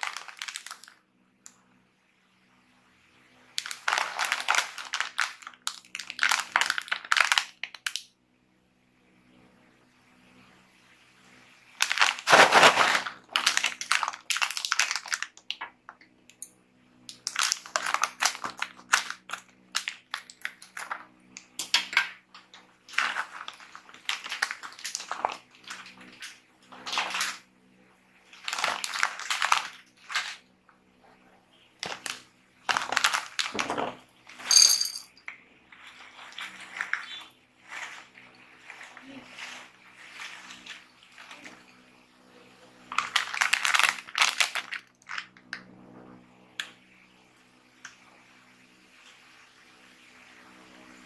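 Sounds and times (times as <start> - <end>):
plastic snack pack crinkling: 0.0 - 1.0, 3.6 - 8.0, 11.8 - 15.7, 17.1 - 22.2, 22.8 - 27.4, 28.3 - 30.4, 31.8 - 34.5, 35.7 - 41.6, 42.9 - 45.4
nuts clattering into plastic tub: 31.8 - 35.2.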